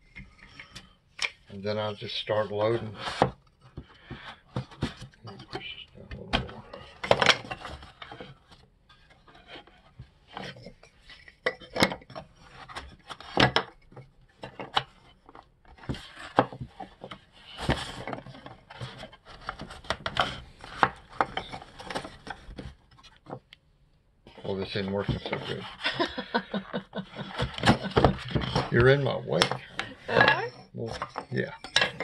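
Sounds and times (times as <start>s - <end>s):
wood scraping on wood: 1.7s - 23.4s, 24.3s - 32.0s
wooden parts knocking: 3.1s - 8.6s, 10.3s - 23.4s, 24.3s - 32.0s.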